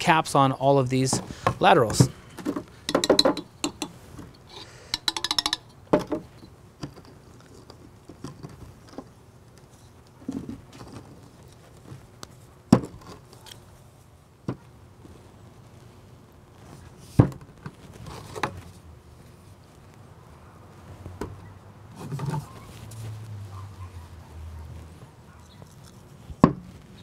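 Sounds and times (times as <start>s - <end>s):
faint handling rustle: 7.2s - 27.0s.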